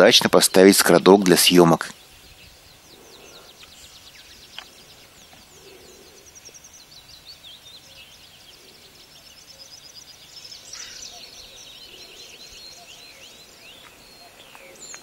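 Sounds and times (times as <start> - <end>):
songbirds singing: 0.0 - 15.0.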